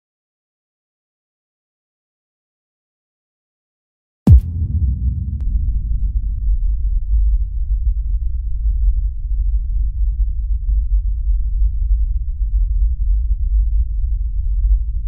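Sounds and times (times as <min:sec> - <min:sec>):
deep rumble: 0:04.3 - 0:15.0.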